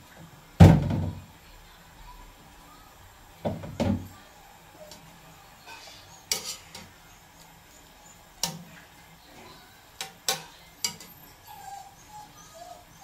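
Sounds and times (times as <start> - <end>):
metal utensils clinking on steel basin: 5.6 - 7.0, 10.0 - 11.3.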